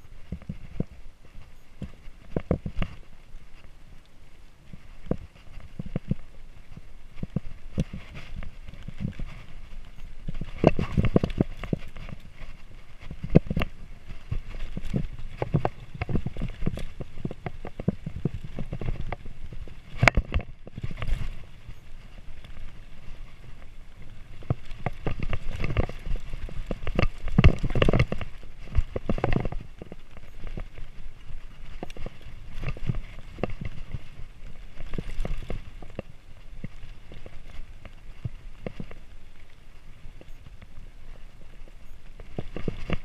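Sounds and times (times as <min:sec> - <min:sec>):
tyres crunching on dirt and stones: 0:04.7 - 0:43.0
bike rattling and knocking: 0:05.0 - 0:39.1.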